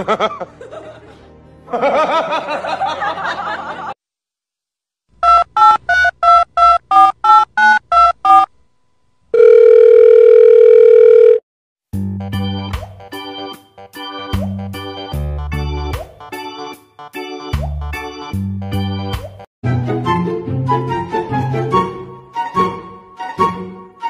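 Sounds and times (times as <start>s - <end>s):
telephone touch-tone beeps: 5.2s - 8.5s, 9.4s - 11.4s
steady telephone tone: 9.3s - 11.4s.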